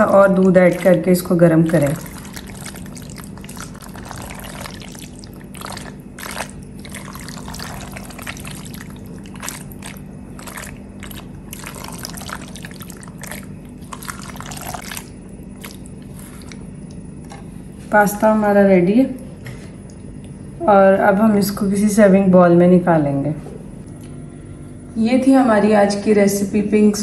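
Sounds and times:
pasta sauce squelching when stirred: 0:00.0 - 0:16.7
steady low hum: 0:00.0 - 0:27.0.

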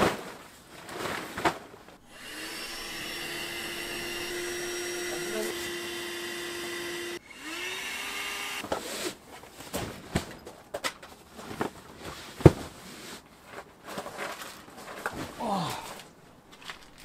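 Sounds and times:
electric air pump humming: 0:02.0 - 0:08.6.

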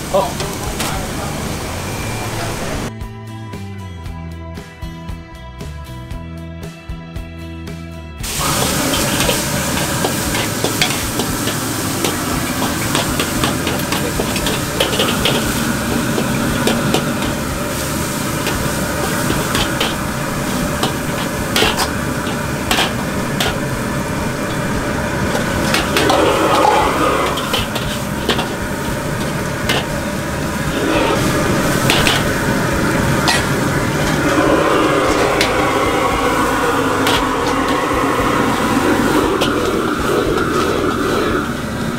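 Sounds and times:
chicken sizzling in a wok: 0:00.0 - 0:02.9, 0:08.2 - 0:41.9
wok burner rushing: 0:00.0 - 0:02.9, 0:08.2 - 0:41.9
ladle clinking and scraping wok: 0:08.3 - 0:41.8.

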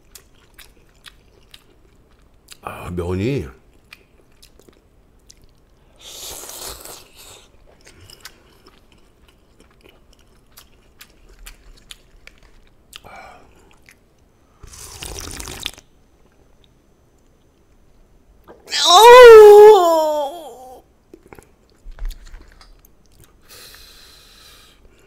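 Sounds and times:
chewing with wet clicks: 0:00.0 - 0:02.6, 0:03.6 - 0:05.8, 0:07.5 - 0:14.3, 0:15.1 - 0:17.9, 0:21.1 - 0:23.4
person slurping noodles: 0:14.6 - 0:15.8.

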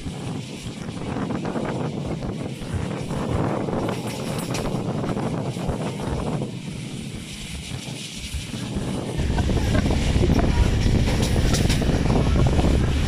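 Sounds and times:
train running noise: 0:00.0 - 0:13.0
wind rushing over microphone: 0:00.0 - 0:13.0.

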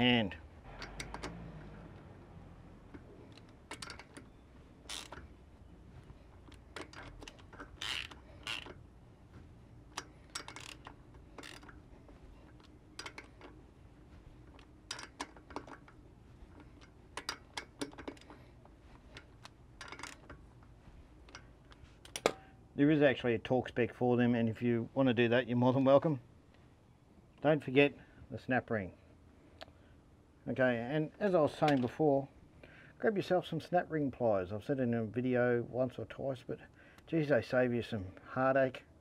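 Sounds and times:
socket ratchet clicking: 0:00.7 - 0:01.8, 0:02.8 - 0:05.3, 0:06.4 - 0:08.9, 0:09.8 - 0:11.8, 0:12.5 - 0:13.6, 0:14.5 - 0:18.4, 0:19.2 - 0:20.4.

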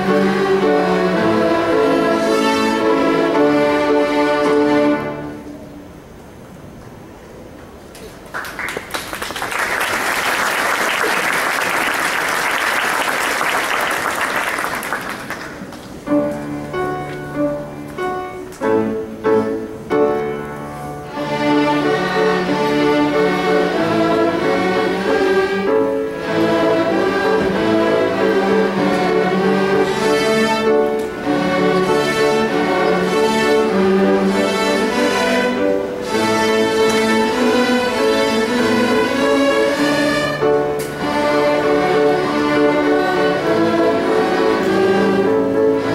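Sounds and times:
string orchestra playing: 0:00.0 - 0:05.8, 0:20.8 - 0:45.9
audience applause: 0:08.2 - 0:15.9.

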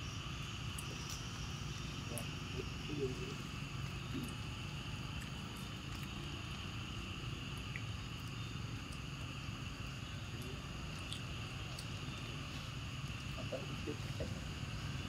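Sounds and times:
high insect drone: 0:00.0 - 0:15.0
faint ticks: 0:03.8 - 0:13.4.

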